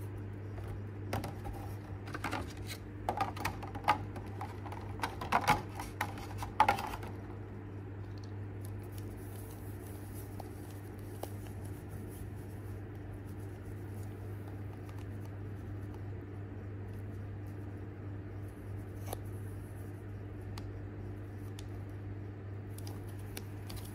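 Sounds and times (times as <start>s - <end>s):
steady low hum: 0.0s - 23.9s
plastic tray crackling and clicking: 1.2s - 7.2s.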